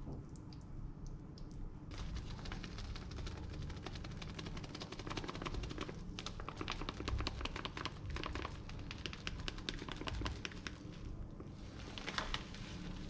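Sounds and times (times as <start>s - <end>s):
plastic bag crinkling: 6.1s - 13.0s.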